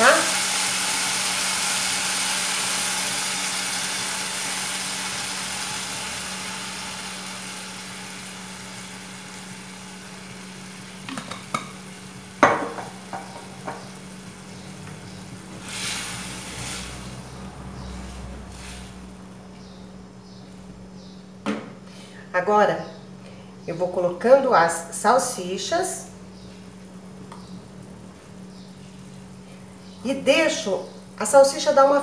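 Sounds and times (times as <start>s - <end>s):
sauce sizzling in frying pan: 0.0s - 19.4s.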